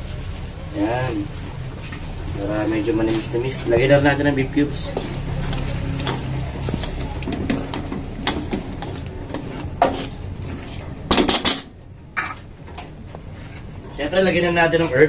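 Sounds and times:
spatula scraping in wok: 3.0s - 11.3s, 13.2s - 14.0s.

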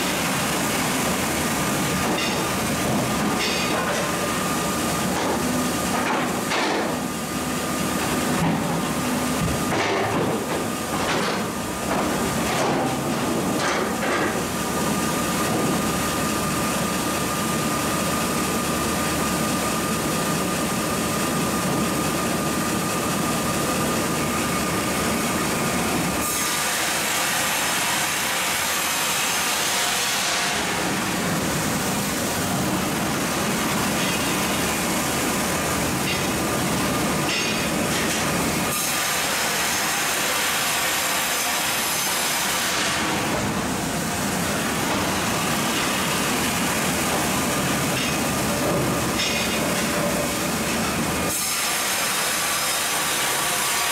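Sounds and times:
saw blade cutting log: 26.2s - 31.0s, 37.2s - 43.4s, 50.7s - 53.9s.

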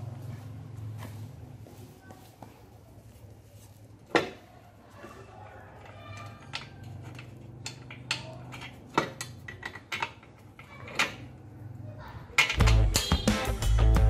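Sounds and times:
loud music: 12.6s - 14.0s.

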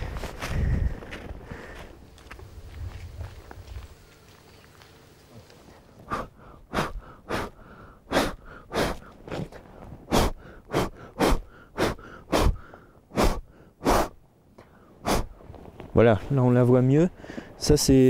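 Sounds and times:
man's forceful breaths: 0.0s - 3.2s, 6.0s - 15.4s, 17.1s - 17.6s
soft breathing: 0.0s - 3.3s, 5.4s - 15.4s, 17.1s - 17.6s.

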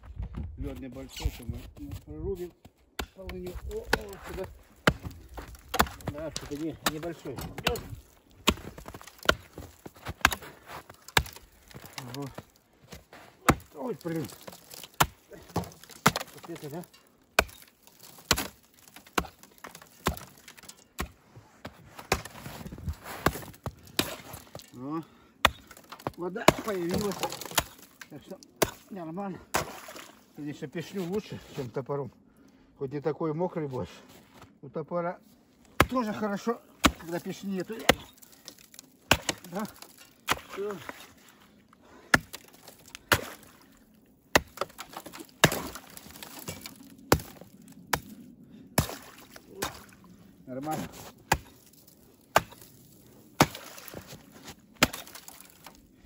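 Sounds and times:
hatchet chopping ice: 3.0s - 12.4s, 13.4s - 21.2s, 22.0s - 24.7s, 25.4s - 30.1s, 35.8s - 41.0s, 42.0s - 43.6s, 44.3s - 48.2s, 48.8s - 49.9s, 50.7s - 52.8s, 53.4s - 54.2s, 54.8s - 55.8s.

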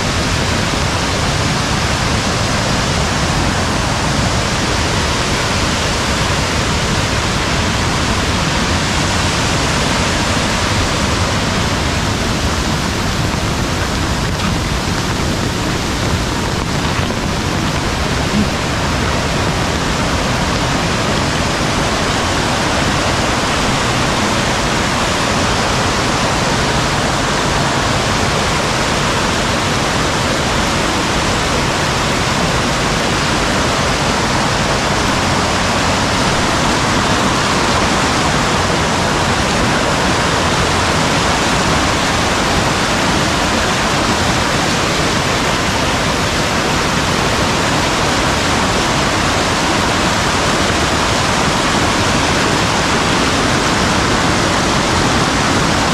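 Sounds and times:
stream rushing: 0.0s - 55.9s.

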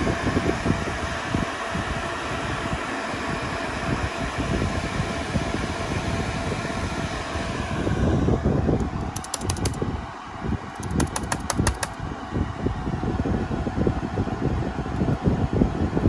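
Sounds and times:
cooling fans whirring: 0.0s - 16.0s
laptop key clicks: 9.1s - 9.8s, 10.8s - 12.0s.

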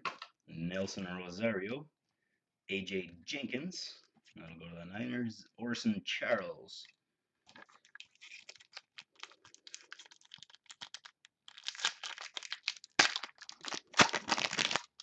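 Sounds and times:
foil wrapper tearing and crinkling: 7.5s - 15.0s.

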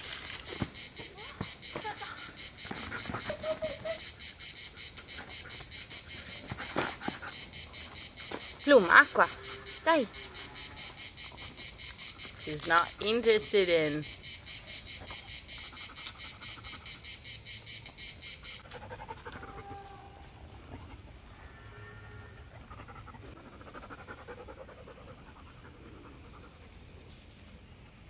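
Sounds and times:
dog panting rapidly: 15.2s - 17.0s, 22.6s - 26.8s.

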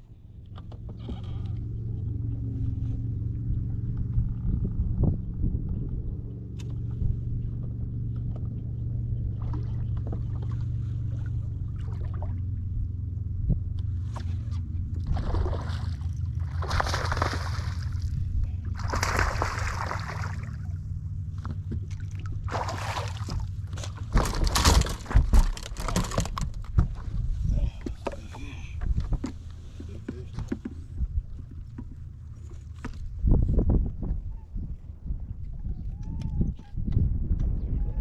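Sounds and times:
steady low rumble: 0.0s - 38.0s
fish flopping on boat deck: 14.1s - 20.8s, 21.4s - 33.2s
fish splashing in water: 15.0s - 20.8s, 21.9s - 26.4s.

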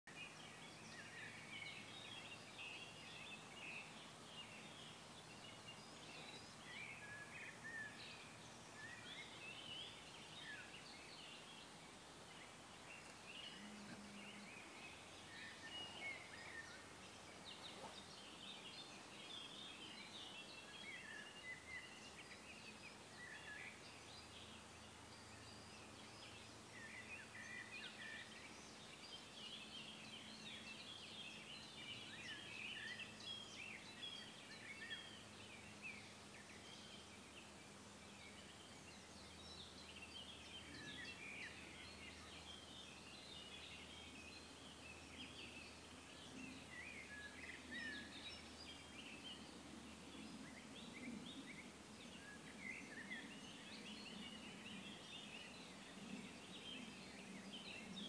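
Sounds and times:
songbirds chirping: 0.0s - 58.0s
soft background hiss: 0.1s - 58.0s.

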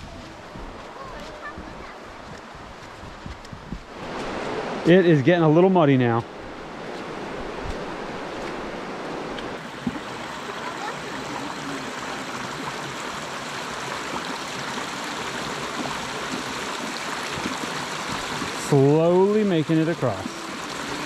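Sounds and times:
creek water rushing: 0.0s - 21.0s.

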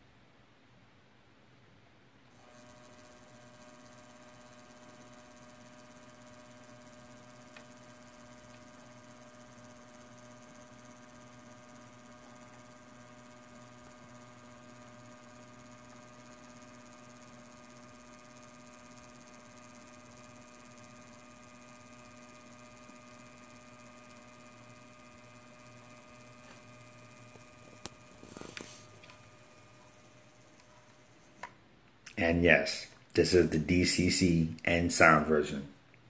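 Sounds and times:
faint electrical hum: 0.0s - 36.0s.

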